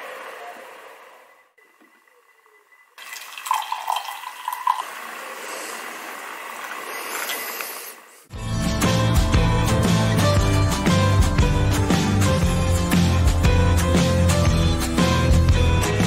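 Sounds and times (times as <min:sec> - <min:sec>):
coffee pouring into a mug: 0:03.0 - 0:05.1
music: 0:08.3 - 0:16.0.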